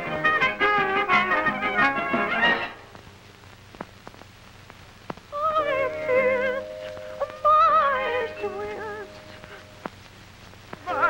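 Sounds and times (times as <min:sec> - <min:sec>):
brass cartoon music: 0:00.0 - 0:02.9
faint clicks: 0:03.0 - 0:05.3
held steady note: 0:05.3 - 0:11.0.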